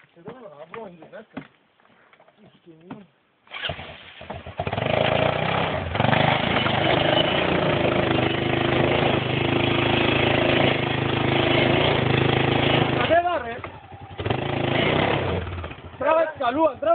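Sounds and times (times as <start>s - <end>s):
engine starting and running: 3.5s - 16.3s.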